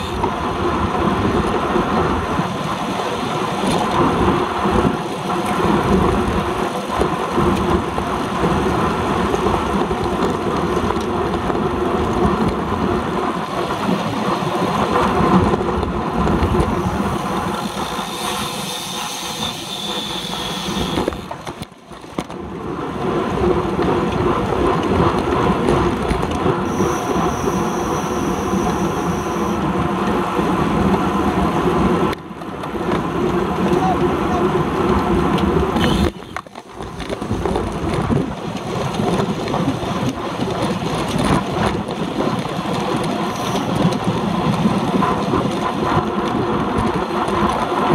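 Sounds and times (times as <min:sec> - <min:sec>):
road rumble with rattling: 0:00.0 - 0:47.9
thin high whine: 0:16.7 - 0:21.4, 0:26.6 - 0:29.7.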